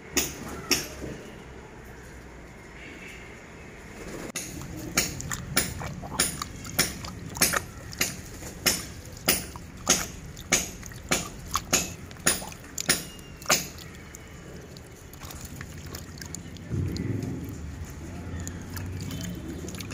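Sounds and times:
hand swishing water in a tub: 0:04.4 - 0:17.1, 0:17.8 - 0:19.9
rhythmic water splashes: 0:04.4 - 0:19.9.

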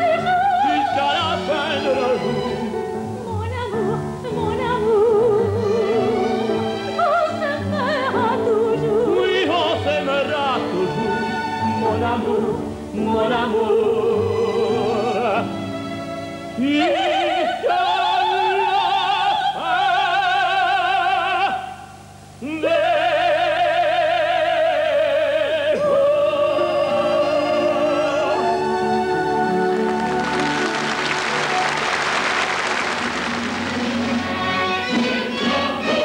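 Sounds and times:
operetta singing: 0:22.6 - 0:36.0
orchestra playing: 0:26.5 - 0:36.0
applause: 0:29.7 - 0:34.3.

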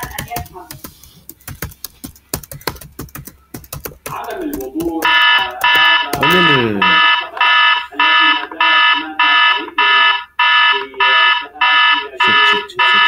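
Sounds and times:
electronic alarm beeping: 0:05.0 - 0:13.0.

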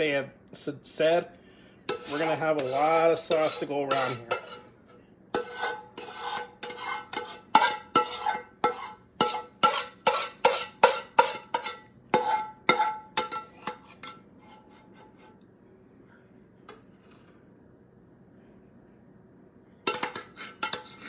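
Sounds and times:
spoon scraping a saucepan: 0:01.9 - 0:15.4, 0:19.9 - 0:21.0.

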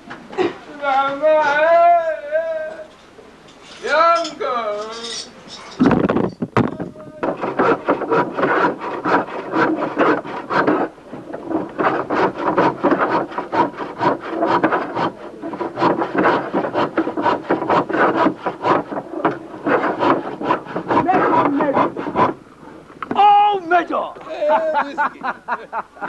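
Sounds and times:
hand tool rasping wood: 0:06.7 - 0:22.8.

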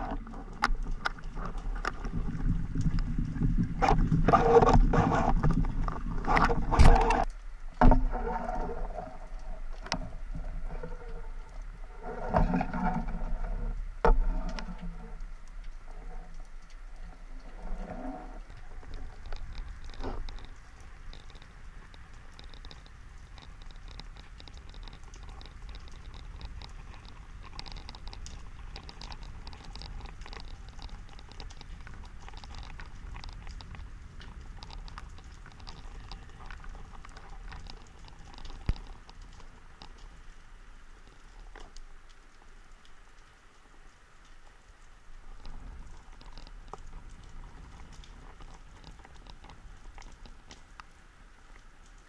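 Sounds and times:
low underwater rumble: 0:00.0 - 0:39.8
fine crackle of tiny clicks: 0:00.0 - 0:52.0.

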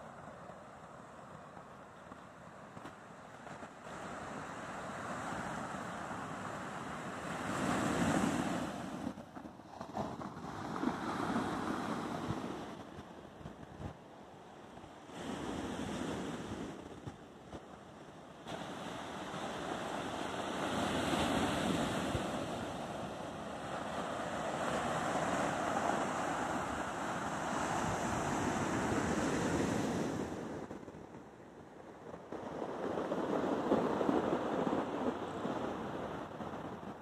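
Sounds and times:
surf on shingle beach: 0:00.0 - 0:37.0
wind buffeting microphone: 0:14.8 - 0:37.0.

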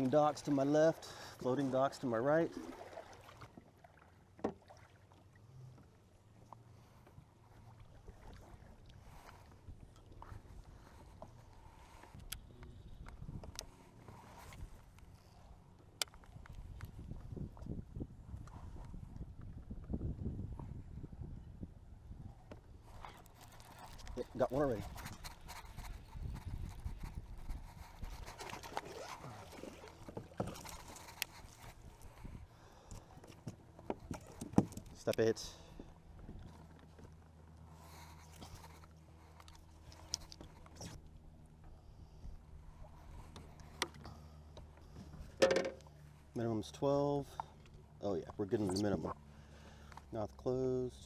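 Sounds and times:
paddle strokes through water: 0:00.0 - 0:19.7, 0:22.4 - 0:34.9, 0:35.6 - 0:46.4
wind rumble on microphone: 0:12.0 - 0:14.9, 0:16.2 - 0:29.5, 0:31.4 - 0:32.6, 0:35.7 - 0:36.7.

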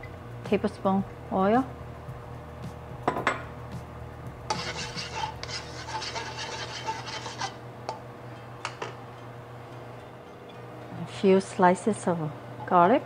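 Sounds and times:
plastic spatula scraping wok: 0:04.5 - 0:07.6.

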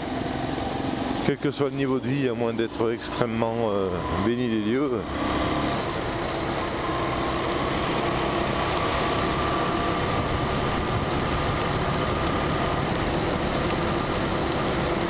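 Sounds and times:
motorcycle engine humming: 0:00.0 - 0:15.0
wind rush over microphone: 0:08.5 - 0:15.0.

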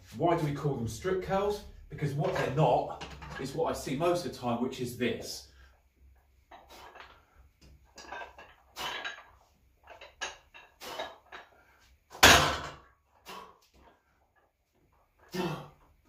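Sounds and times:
dumbbell plates clinking: 0:02.1 - 0:03.7, 0:06.4 - 0:11.6
dumbbells clanking down: 0:02.2 - 0:03.6, 0:06.5 - 0:07.3, 0:07.9 - 0:11.5, 0:12.1 - 0:12.9.

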